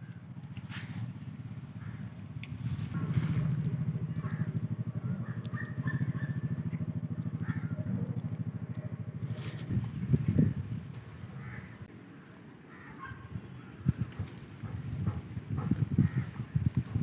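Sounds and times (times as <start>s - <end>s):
small engine running: 0.0s - 11.6s.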